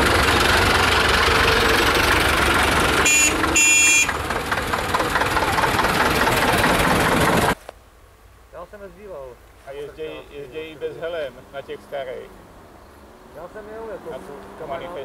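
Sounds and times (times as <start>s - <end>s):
tractor engines running: 0.0s - 7.6s, 8.6s - 15.0s
high-pitched horn beeps: 3.0s - 4.2s.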